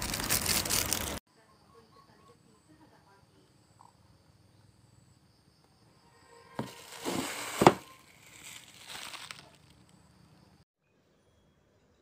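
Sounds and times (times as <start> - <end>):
plastic packaging crinkling: 0.0 - 1.2, 6.6 - 9.9.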